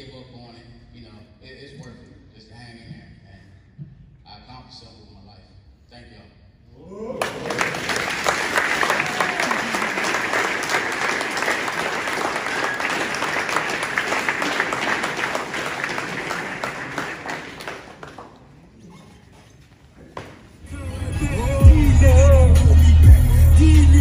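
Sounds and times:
audience applauding: 7.2 - 18.6.

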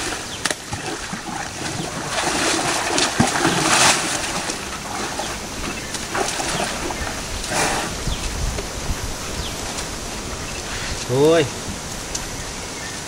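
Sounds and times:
loud splash: 0.0 - 8.1
stream water splashing: 0.0 - 13.0.

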